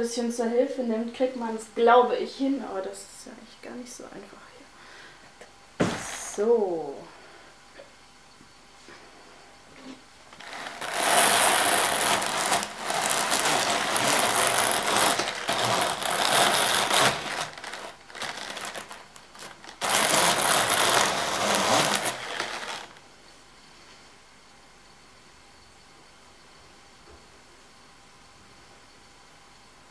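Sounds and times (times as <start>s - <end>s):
drum carder whirring: 10.4s - 23.0s.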